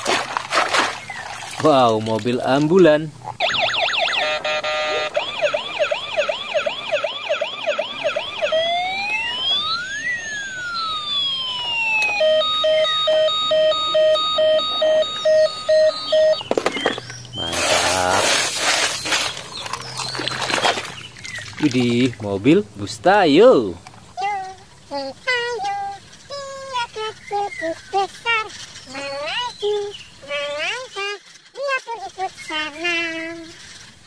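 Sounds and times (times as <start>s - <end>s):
hand stirring wet gravel: 0.0s - 2.8s, 17.4s - 22.1s
ambulance siren: 3.4s - 18.3s.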